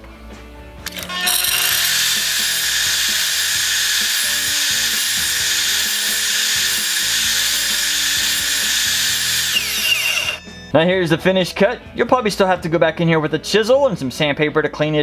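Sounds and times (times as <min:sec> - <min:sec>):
miter saw cutting board: 0:00.9 - 0:10.5.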